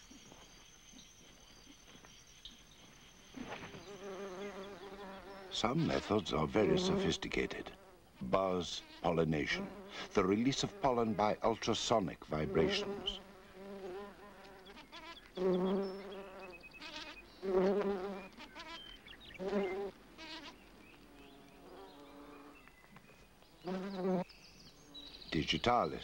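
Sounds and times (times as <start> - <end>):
bumblebee buzzing: 3.4 - 11.3, 12.2 - 22.6, 23.6 - 24.2.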